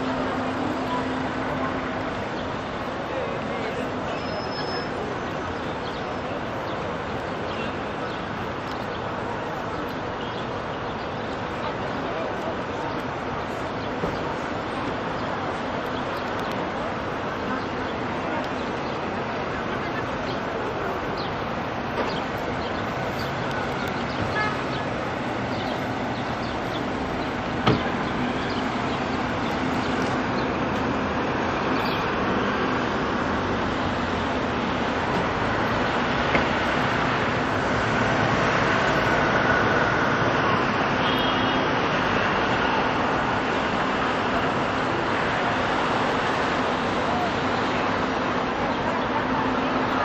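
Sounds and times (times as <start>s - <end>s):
cars driving past: 13.6s - 50.0s.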